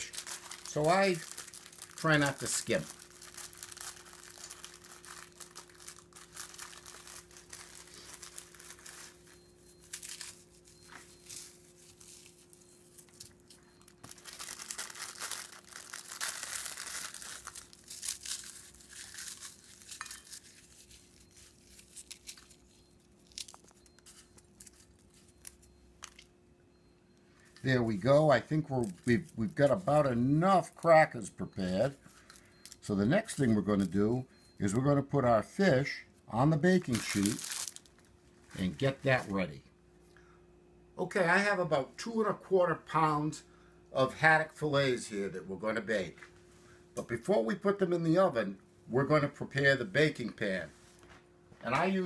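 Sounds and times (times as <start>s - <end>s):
crackers crushed by hand: 0.0s - 10.7s, 12.0s - 26.3s, 36.8s - 38.0s.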